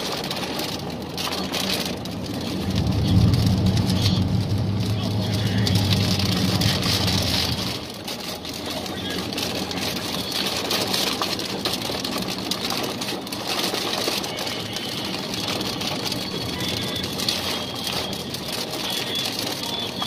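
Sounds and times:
car hum: 0.0 - 20.0
heavy rain drumming on car roof: 0.0 - 20.0.

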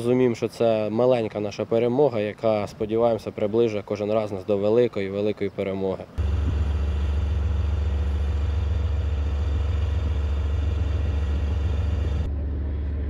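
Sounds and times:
diesel engine rumbling: 6.2 - 12.3.

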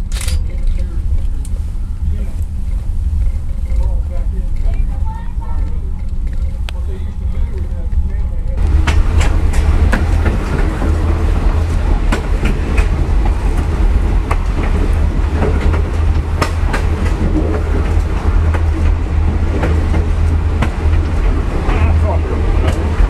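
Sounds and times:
train wheels rumbling on rails: 0.0 - 23.0
wheels clicking over rail joints: 0.0 - 23.0.

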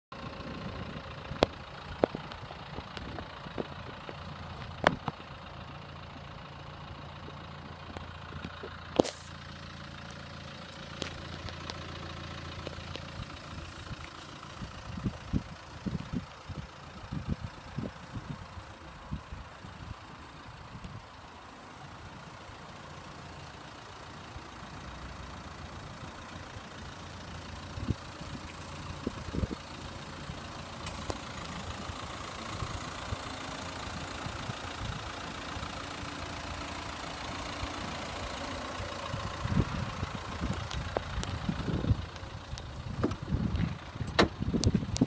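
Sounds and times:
vehicle engine idling: 0.1 - 45.0
sharp clicks: 10.0 - 13.4, 30.8 - 31.5.

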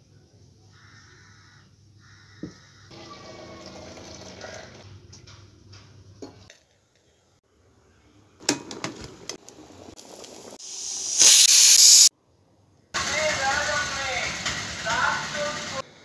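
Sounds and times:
loud hiss: 10.4 - 12.1, 13.0 - 16.0.

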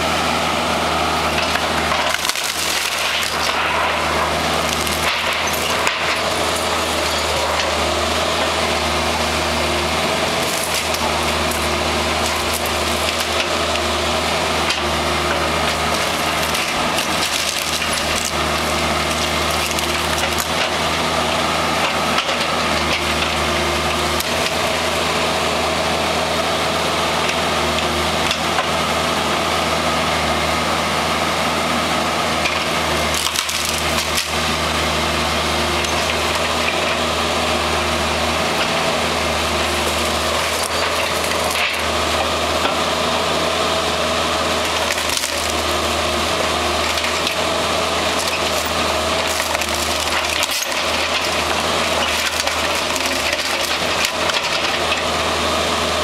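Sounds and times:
excavator diesel engine running: 0.0 - 56.0
wood cracking and splintering: 1.2 - 25.1, 32.4 - 42.9, 43.7 - 55.3
debris clattering: 1.9 - 4.0, 15.8 - 20.6, 48.2 - 55.0.

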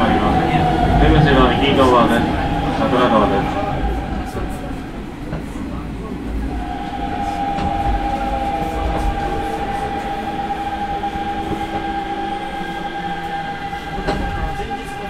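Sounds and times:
electric train motor whine: 0.0 - 15.0
train wheels rumbling on rail: 0.0 - 15.0.

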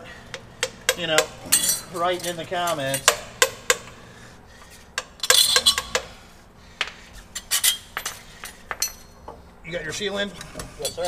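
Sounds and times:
metal tools tapping steel: 0.3 - 4.0, 5.0 - 6.2, 6.8 - 9.4, 10.4 - 11.0.

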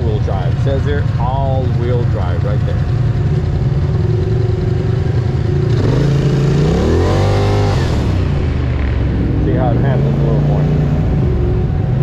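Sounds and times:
quad bike engine revving: 0.0 - 12.0.

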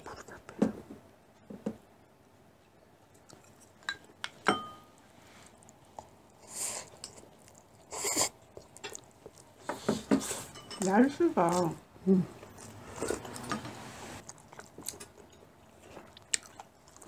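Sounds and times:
slurping noodles: 7.8 - 8.4.

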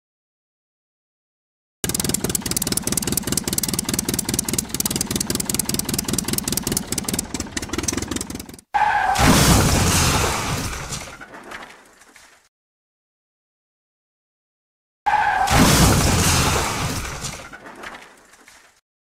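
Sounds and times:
toy motor clattering: 1.8 - 8.6.

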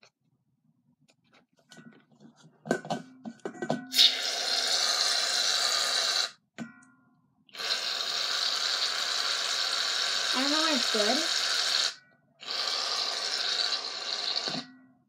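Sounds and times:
foam spray hissing: 7.6 - 14.6.

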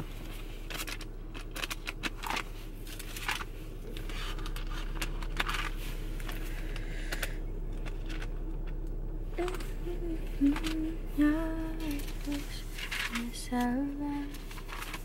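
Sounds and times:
pages being leafed through: 0.0 - 8.3, 11.9 - 15.0
low steady hum: 0.0 - 15.0.

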